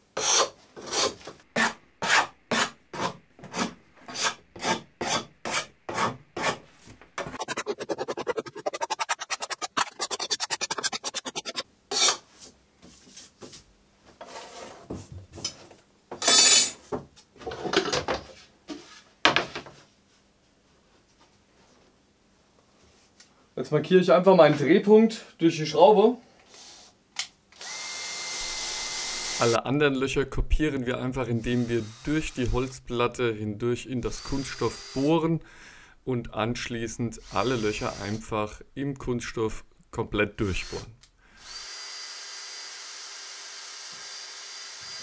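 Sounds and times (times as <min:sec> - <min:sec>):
scraping tool rasping plastic: 0:00.2 - 0:12.2.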